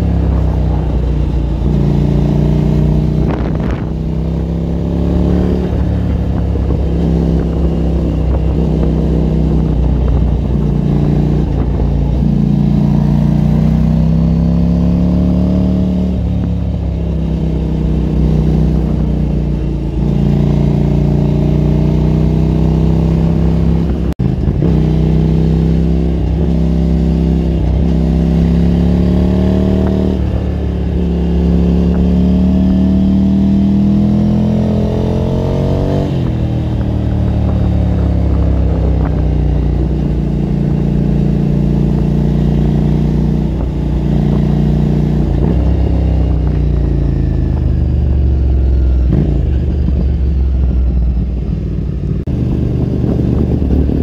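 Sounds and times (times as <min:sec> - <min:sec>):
motorcycle engine shifting gears: 0:00.0 - 0:54.0
wind rush: 0:00.0 - 0:54.0.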